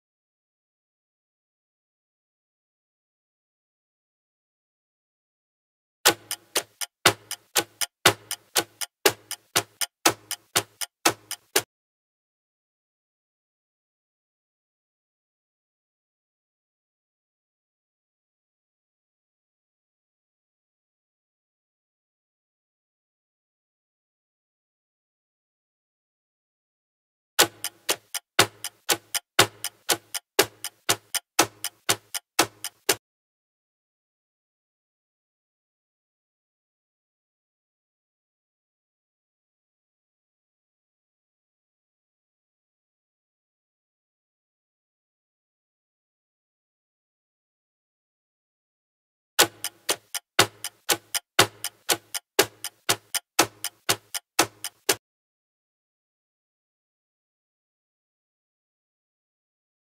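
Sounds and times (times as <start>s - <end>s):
sharp clock-like ticks: 6.1s - 11.7s, 27.4s - 33.0s, 49.4s - 55.0s.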